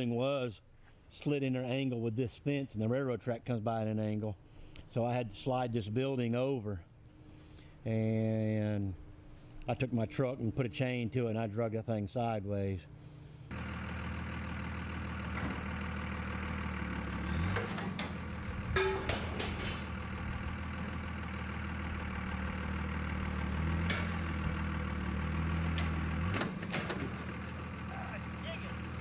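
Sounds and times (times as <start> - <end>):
diesel truck engine under load: 13.1 - 29.0
metallic clanks: 17.4 - 20.7.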